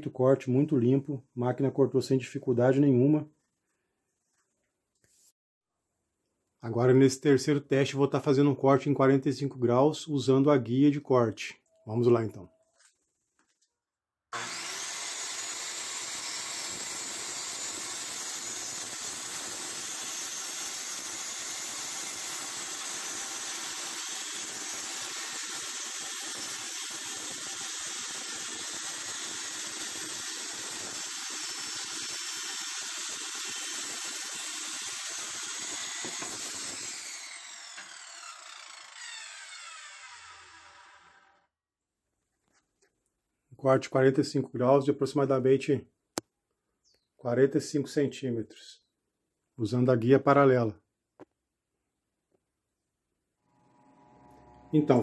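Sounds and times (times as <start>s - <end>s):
circular saw cutting plywood: 14.3s - 41.5s
saw blade winding down: 14.4s - 41.5s.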